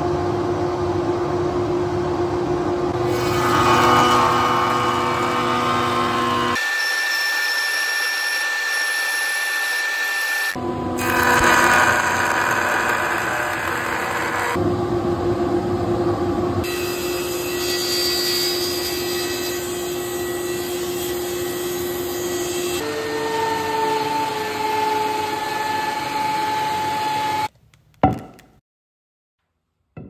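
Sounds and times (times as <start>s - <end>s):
table saw cutting wood: 3.0s - 14.6s, 16.6s - 27.5s.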